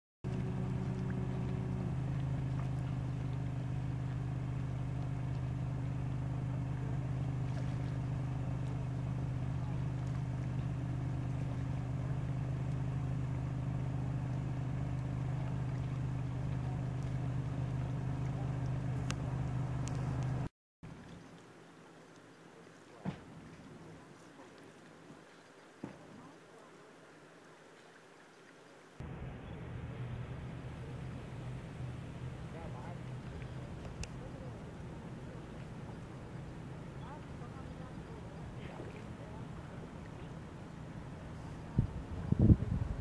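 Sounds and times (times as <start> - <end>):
higher engine tone: 0.2 - 20.5, 29.0 - 43.0
engine running with low hum: 0.2 - 21.2, 29.0 - 43.0.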